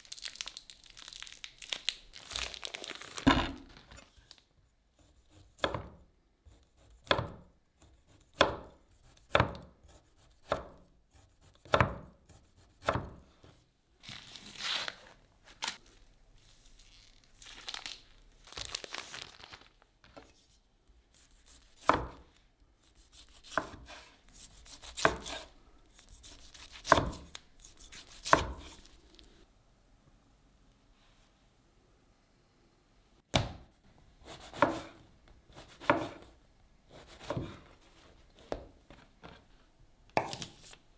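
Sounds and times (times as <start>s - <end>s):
plastic wrapping crinkling: 0.0s - 4.5s, 14.0s - 20.4s
knife slicing sausage: 21.1s - 28.9s, 34.2s - 37.7s.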